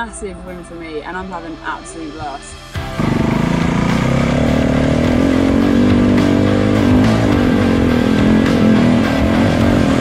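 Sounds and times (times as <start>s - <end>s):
dirt bike engine running: 2.8s - 10.0s.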